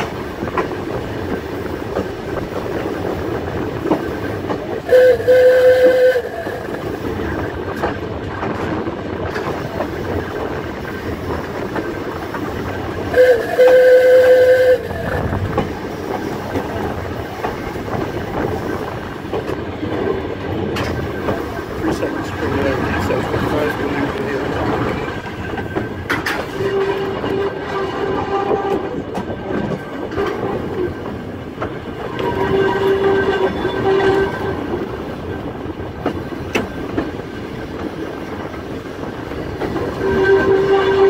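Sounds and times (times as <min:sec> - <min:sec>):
train wheels rattling on rails: 0:00.0 - 0:41.0
train warning horn: 0:04.8 - 0:06.8, 0:13.1 - 0:15.4, 0:26.4 - 0:29.0, 0:32.1 - 0:34.7, 0:39.9 - 0:41.0.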